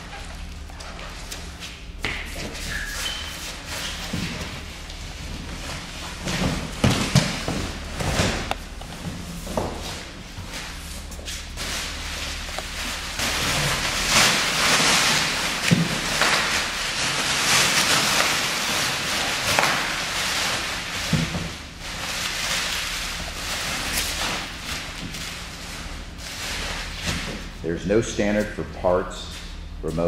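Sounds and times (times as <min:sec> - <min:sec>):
bubble wrap crinkling: 0:10.0 - 0:27.6.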